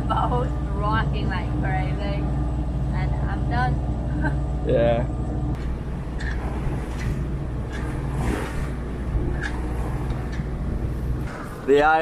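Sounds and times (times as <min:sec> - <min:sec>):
boat engine droning: 0:00.0 - 0:12.0
hull wash through waves: 0:05.6 - 0:12.0.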